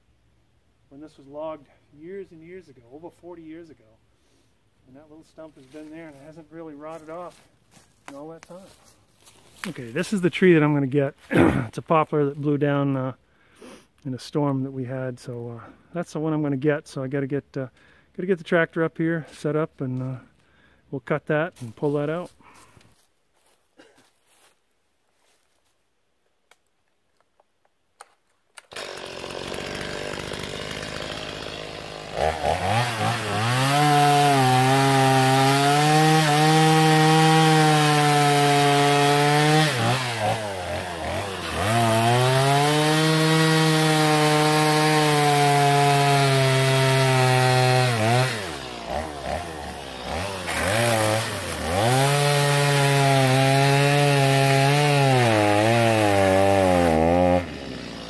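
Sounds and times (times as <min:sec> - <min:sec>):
chainsaw cutting log: 0:28.0 - 0:58.0.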